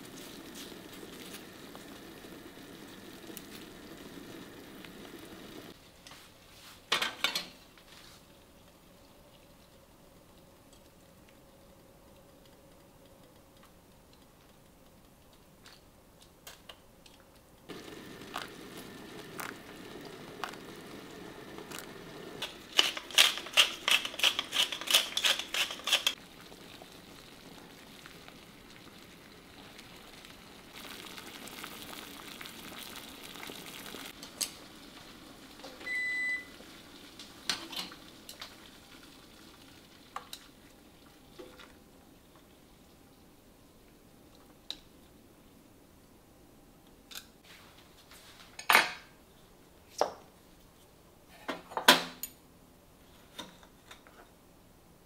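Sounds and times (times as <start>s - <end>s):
appliance electronic beep: 35.8s - 36.6s.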